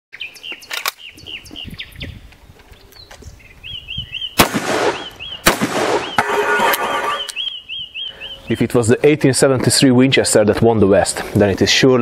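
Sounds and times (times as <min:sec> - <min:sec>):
birds chirping: 0:00.1 - 0:10.8
gunshots with echo: 0:04.4 - 0:07.3.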